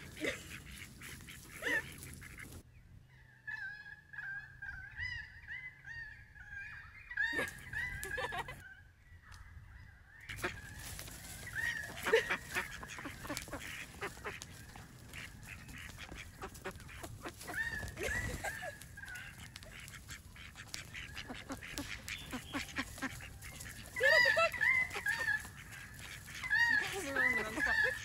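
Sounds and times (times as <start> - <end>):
ducks quacking: 0.0 - 8.7, 10.2 - 28.0
bills pecking on wooden plank: 10.4 - 28.0.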